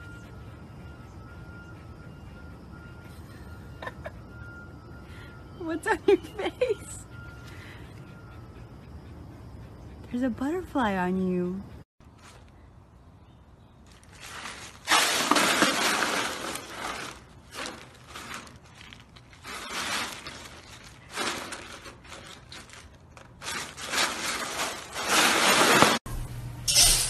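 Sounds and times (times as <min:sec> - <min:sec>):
ice cubes clattering and crunching: 0:13.9 - 0:26.0.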